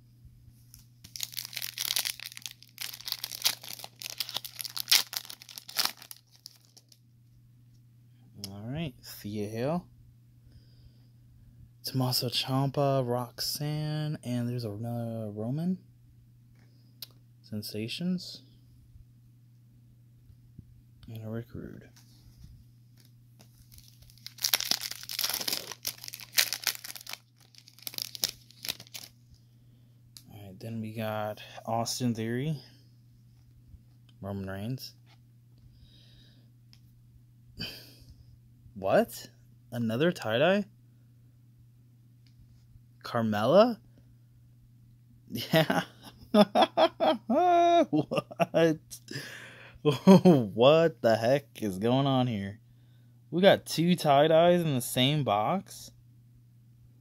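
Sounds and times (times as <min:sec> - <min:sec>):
foil wrapper crinkling and tearing: 0:01.0 - 0:07.0, 0:23.4 - 0:29.2.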